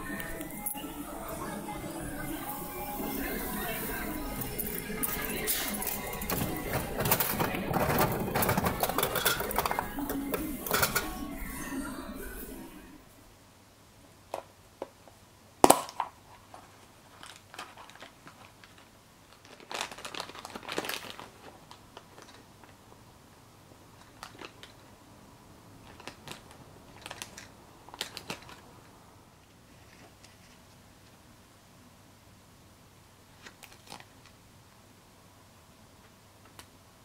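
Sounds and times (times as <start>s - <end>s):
plastic bag crinkling: 2.1s - 11.6s, 16.4s - 22.8s, 24.0s - 24.9s, 25.8s - 28.8s, 33.4s - 34.3s
plastic ball snapping open: 15.6s - 16.1s.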